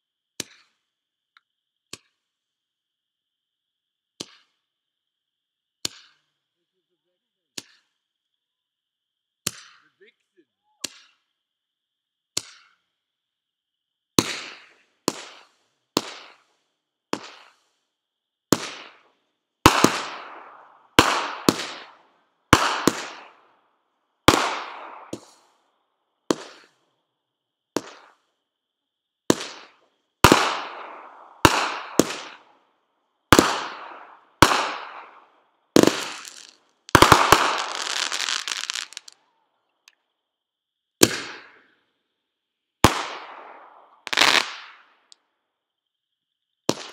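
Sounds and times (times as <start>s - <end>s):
fireworks crackling: 14.2s - 16.5s, 17.2s - 17.7s, 19.6s - 23.4s, 24.3s - 25.6s, 29.3s - 32.4s, 33.4s - 39.2s, 42.8s - 44.8s
fireworks bangs: 17.1s - 17.6s, 18.5s - 19.0s, 19.6s - 23.4s, 24.2s - 25.6s, 26.3s - 26.8s, 27.7s - 28.2s, 29.3s - 32.5s, 33.3s - 39.2s, 42.8s - 44.9s.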